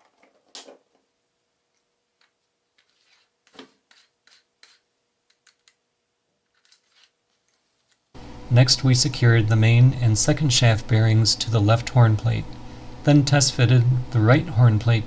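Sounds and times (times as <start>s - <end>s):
metal parts clicking and tapping: 4.3s - 5.8s, 6.5s - 8.0s.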